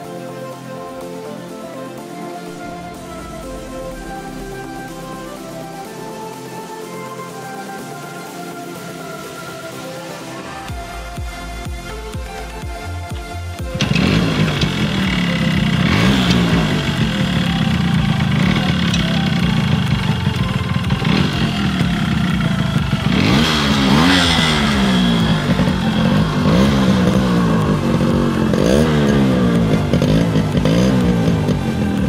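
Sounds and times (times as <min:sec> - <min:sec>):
motorcycle engine throttle blips: 0:10.7 - 0:32.0.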